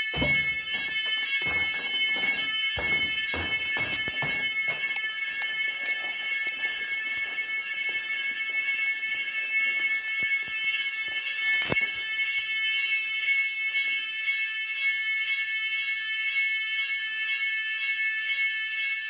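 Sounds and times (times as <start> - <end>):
knocks: 0.0 - 4.9
fire alarm sounding: 0.0 - 19.0.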